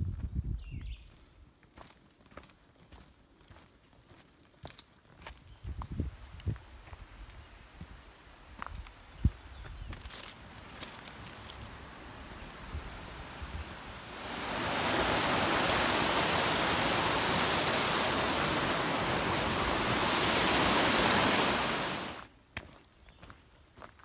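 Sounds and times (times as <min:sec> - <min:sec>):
footsteps on dirt trail: 0:00.1 - 0:07.1, 0:07.8 - 0:11.8, 0:22.2 - 0:24.0
stream rushing: 0:10.4 - 0:22.3.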